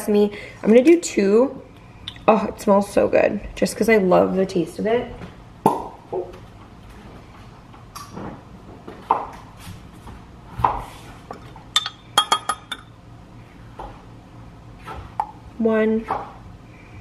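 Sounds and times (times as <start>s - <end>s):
spoon clinking against glass cup: 11.8s - 12.9s.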